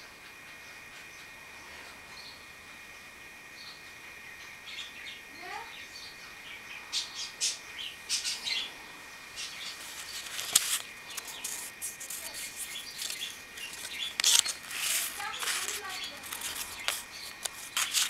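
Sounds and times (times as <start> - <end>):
paper rustling and crinkling: 9.6 - 18.0.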